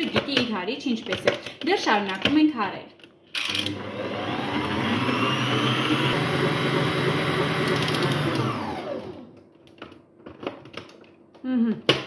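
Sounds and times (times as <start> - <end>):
mixer motor winding down: 3.5 - 9.4
stand mixer whisking: 3.7 - 9.1.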